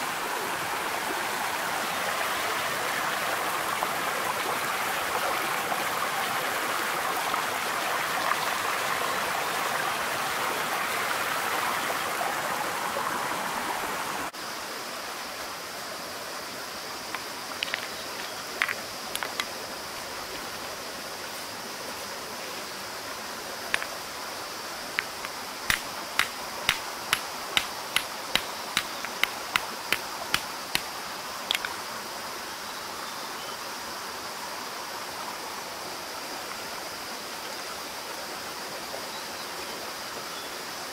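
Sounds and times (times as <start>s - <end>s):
stream running over rocks: 0.0s - 40.9s
rock being tapped: 17.1s - 19.5s, 23.7s - 24.0s, 25.0s - 30.9s, 31.5s - 31.8s.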